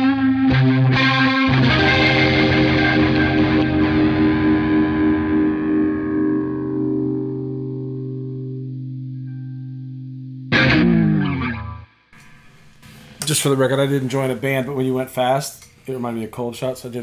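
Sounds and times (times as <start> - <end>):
overdriven electric guitar chords: 0.0 - 13.2.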